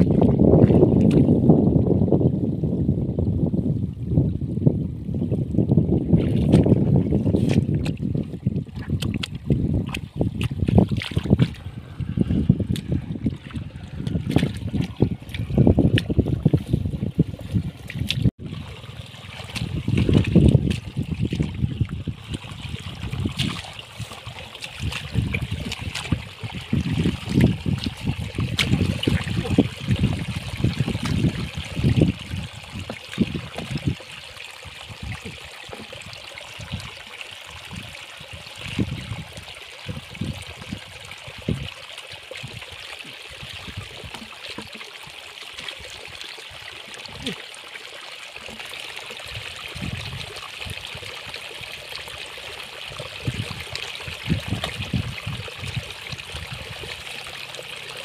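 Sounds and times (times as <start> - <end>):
water trickling: 3.8 - 58.0
hands splashing in mud: 8.8 - 11.8, 13.9 - 16.7, 19.3 - 21.6, 22.3 - 31.8.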